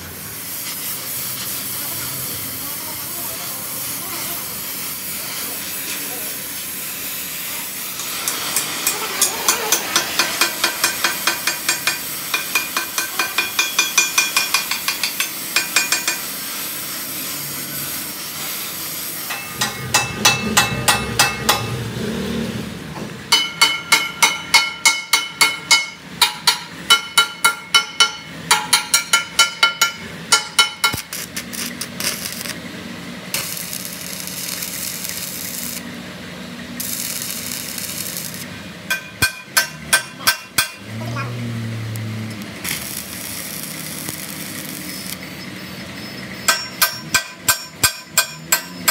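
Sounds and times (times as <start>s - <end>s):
arc welding crackle: 0.0s - 20.4s, 29.7s - 47.0s
hammer striking steel: 7.9s - 16.3s, 19.2s - 21.9s, 23.3s - 32.5s, 36.8s - 41.0s, 46.4s - 48.9s.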